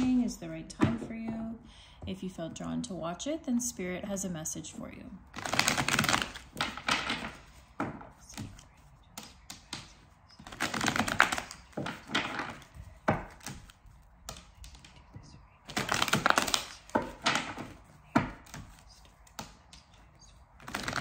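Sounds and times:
cards being shuffled: 0:05.3 - 0:21.0
deck of cards tapped: 0:05.8 - 0:21.0.

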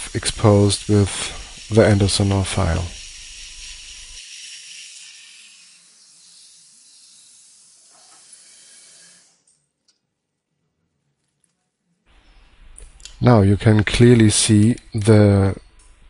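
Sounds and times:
dental suction hissing: 0:00.0 - 0:09.5.

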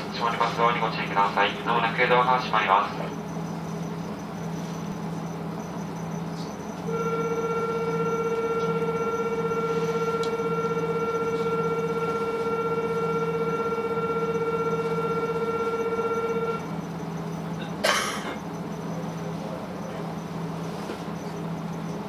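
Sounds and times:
diesel railcar idling hum: 0:00.0 - 0:22.0
electronic departure bell buzzing: 0:03.2 - 0:17.8
train doors closing hiss: 0:19.2 - 0:21.4.

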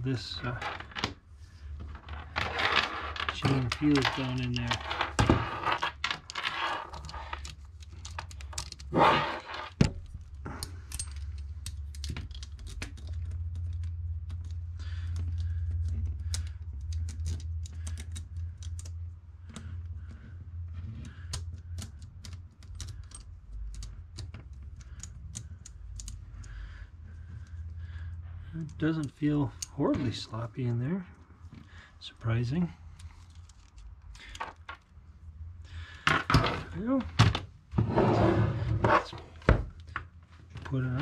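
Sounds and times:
steady low hum: 0:00.0 - 0:41.0
saw chain clicking and rattling: 0:02.2 - 0:13.8.

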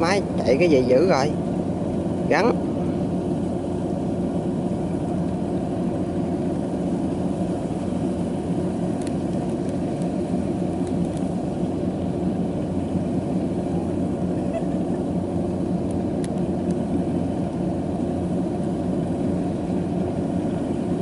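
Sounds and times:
harvester engine droning: 0:00.0 - 0:21.0.

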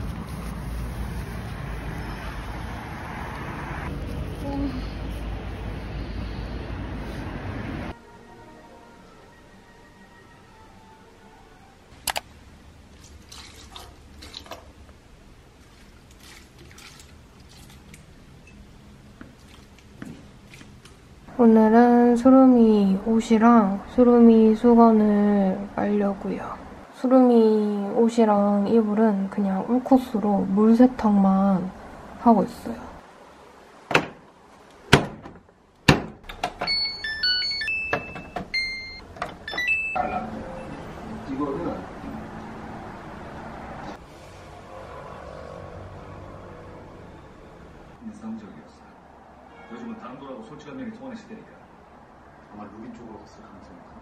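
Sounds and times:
water trickling onto soil: 0:12.9 - 0:14.7, 0:15.6 - 0:18.1, 0:19.2 - 0:21.0.

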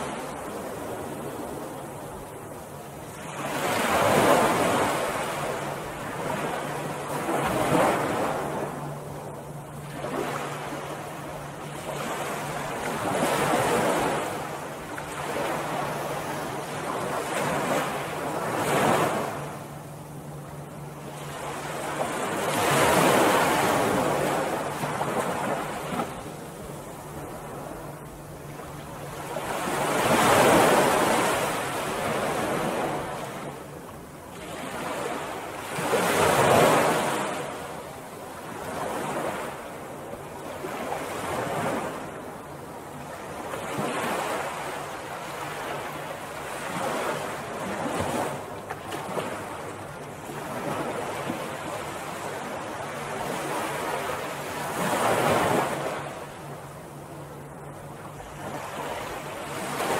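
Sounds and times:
ocean waves breaking: 0:00.0 - 0:59.9.

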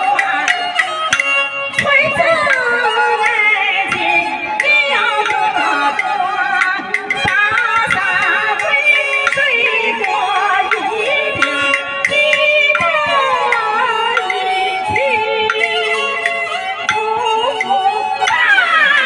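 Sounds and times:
instrumental accompaniment: 0:00.0 - 0:19.0
percussion clicks: 0:00.0 - 0:19.0
woman singing opera: 0:16.9 - 0:19.0.

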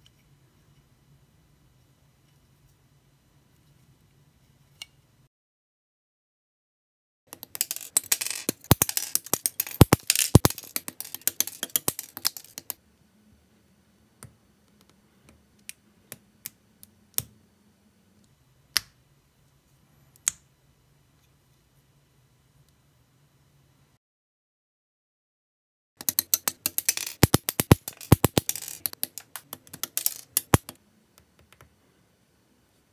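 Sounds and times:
plastic parts clicking and clattering: 0:07.4 - 0:12.8, 0:26.0 - 0:30.8
plastic parts snapping together: 0:07.4 - 0:12.8, 0:26.0 - 0:30.8.

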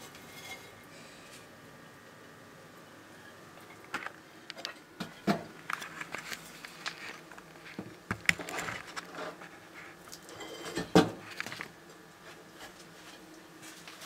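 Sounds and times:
lizard scratching on soil: 0:08.4 - 0:10.1.

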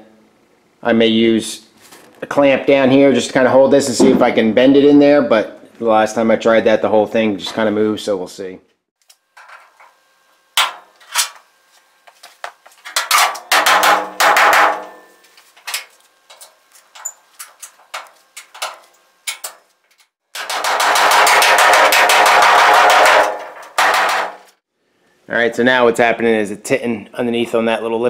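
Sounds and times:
rapid rattling metal impacts: 0:12.9 - 0:24.6.

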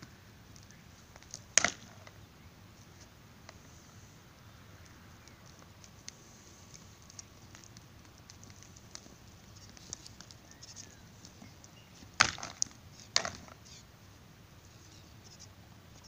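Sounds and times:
goats clashing horns: 0:04.8 - 0:13.6.

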